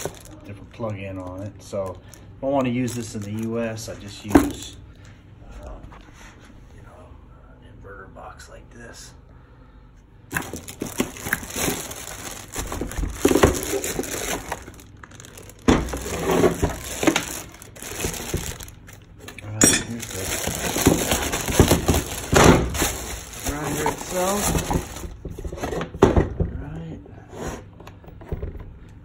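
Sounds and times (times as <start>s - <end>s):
packaging crinkling and scraping: 0.0s - 4.7s, 10.3s - 25.9s.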